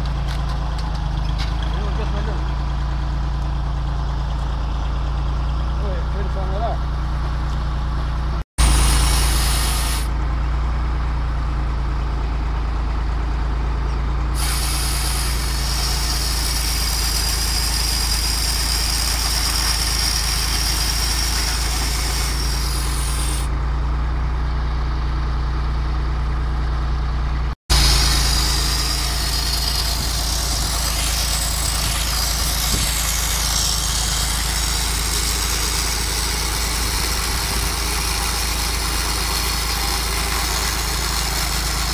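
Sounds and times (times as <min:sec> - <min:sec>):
tractor engine running: 0:00.0 - 0:41.9
saw chain cutting wood: 0:14.4 - 0:23.5, 0:27.7 - 0:41.9.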